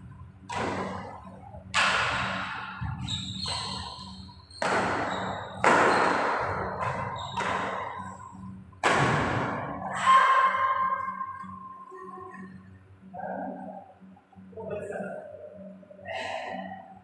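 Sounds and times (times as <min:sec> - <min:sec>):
steady low hum: 0:00.0 - 0:17.0
rackets smacking shuttlecock: 0:03.4 - 0:08.2.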